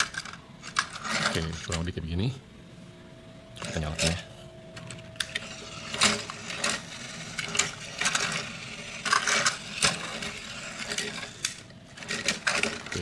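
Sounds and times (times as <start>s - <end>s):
toy train motor whirring: 5.2s - 13.0s.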